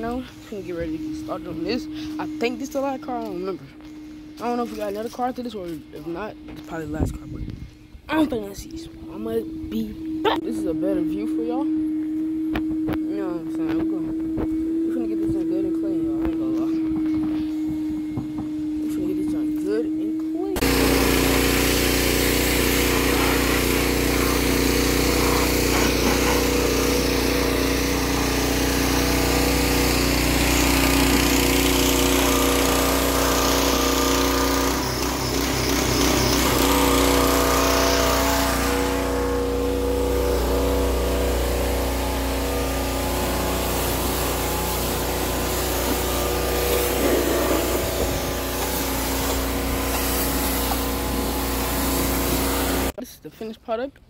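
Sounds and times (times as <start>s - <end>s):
pressure washer hum: 0.0s - 53.0s
water spraying hiss: 40.9s - 52.9s.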